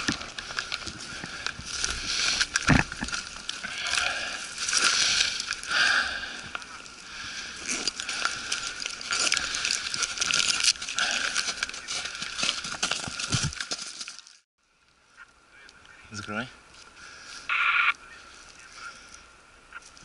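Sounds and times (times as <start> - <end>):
small crackles and clicks: 0.0 - 7.0, 7.6 - 16.9
footsteps crunching: 0.0 - 14.4.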